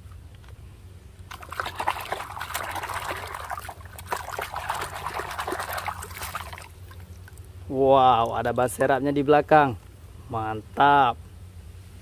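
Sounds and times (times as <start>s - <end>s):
water splashing in plastic basin: 1.3s - 7.4s.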